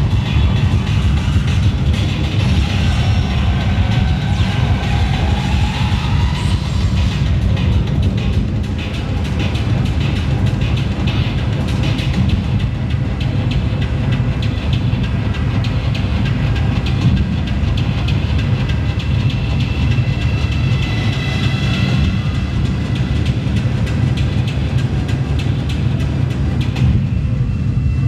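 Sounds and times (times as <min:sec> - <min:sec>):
heavy bass: 0:00.0 - 0:28.0
loud dance music: 0:00.0 - 0:28.0.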